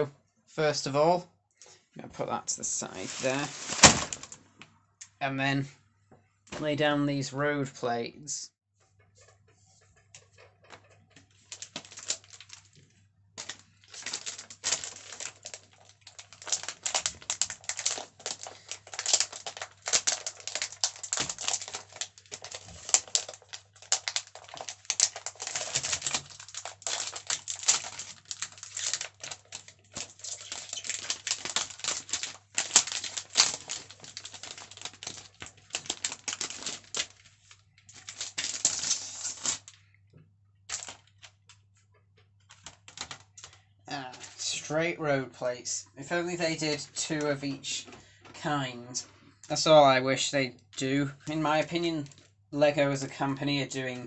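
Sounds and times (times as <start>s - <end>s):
plastic wrapping crinkling: 2.7s - 4.4s, 10.3s - 39.9s, 40.7s - 41.7s, 42.4s - 44.5s, 51.4s - 52.3s.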